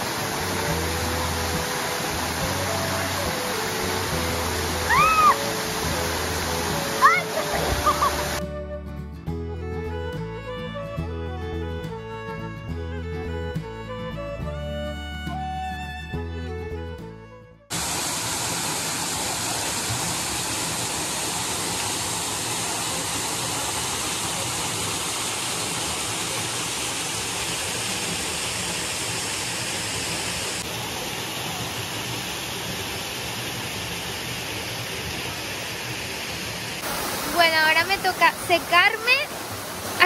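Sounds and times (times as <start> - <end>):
waterfall rushing into pool: 0.0 - 8.4, 17.7 - 40.0.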